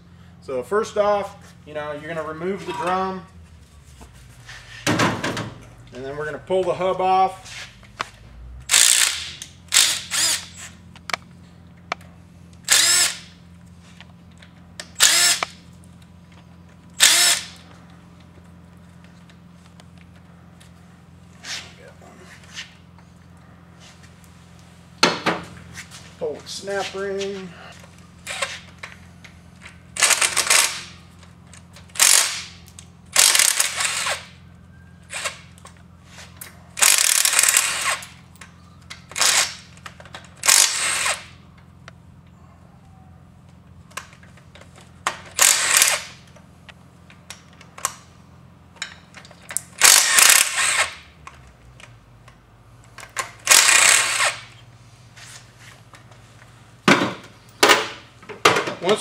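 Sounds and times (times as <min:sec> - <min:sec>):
steady low hum: 0:00.0 - 0:59.0
impact driver bursts: 0:08.7 - 0:10.8, 0:12.6 - 0:13.4, 0:15.0 - 0:15.6, 0:17.0 - 0:17.6, 0:30.0 - 0:31.0, 0:31.9 - 0:34.4, 0:36.8 - 0:38.2, 0:39.1 - 0:39.7, 0:40.4 - 0:41.4, 0:45.3 - 0:46.2, 0:49.8 - 0:51.1, 0:53.3 - 0:54.6.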